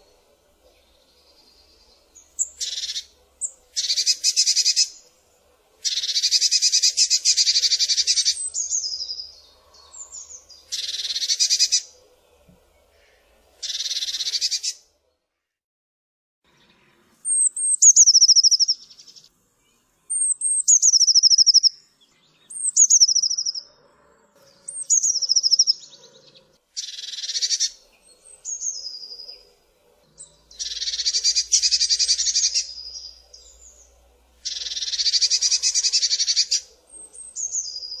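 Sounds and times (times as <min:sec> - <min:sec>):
bird churring scold calls: 0:02.2 - 0:05.0, 0:05.8 - 0:12.0, 0:13.0 - 0:14.8, 0:17.3 - 0:19.0, 0:20.1 - 0:21.7, 0:22.5 - 0:23.7, 0:24.6 - 0:29.5, 0:30.2 - 0:33.8, 0:34.4 - 0:38.0
bird whistled notes and trill: 0:02.2 - 0:05.0, 0:05.8 - 0:11.9, 0:13.6 - 0:14.8, 0:17.2 - 0:19.1, 0:20.1 - 0:21.8, 0:22.4 - 0:23.7, 0:24.6 - 0:29.4, 0:30.2 - 0:33.8, 0:34.4 - 0:38.0.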